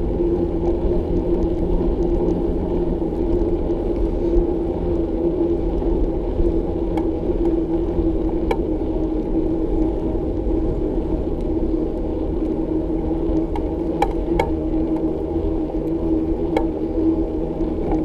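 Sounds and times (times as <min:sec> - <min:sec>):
bicycle rumbling along road: 0:00.0 - 0:18.0
constant hum: 0:00.0 - 0:18.0.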